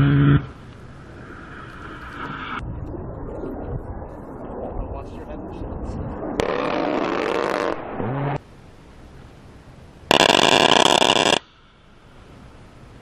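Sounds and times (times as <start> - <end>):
jet noise: 0.0 - 8.4, 10.1 - 11.6
cannon bursts: 6.4 - 8.4, 10.1 - 11.7.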